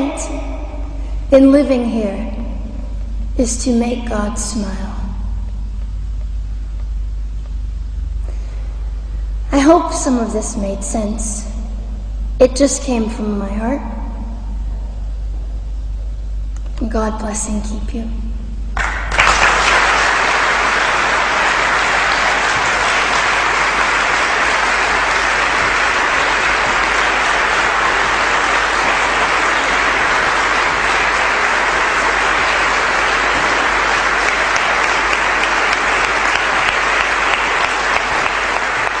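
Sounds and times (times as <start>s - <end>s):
audience applauding: 18.8s - 39.0s.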